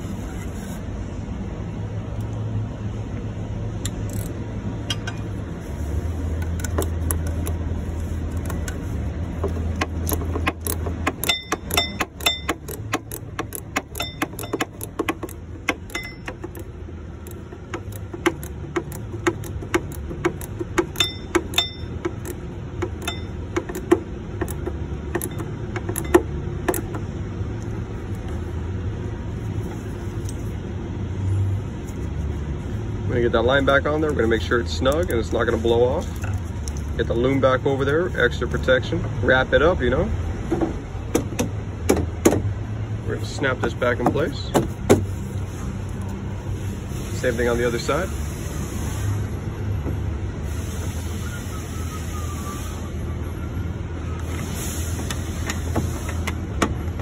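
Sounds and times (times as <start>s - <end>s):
steady low hum: 0.0s - 51.2s
ratchet and metal tools clinking: 6.4s - 28.2s.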